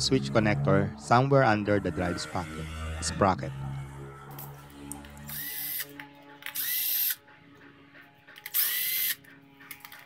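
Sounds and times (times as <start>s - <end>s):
power drill whirring: 5.2s - 7.2s, 8.4s - 10.0s.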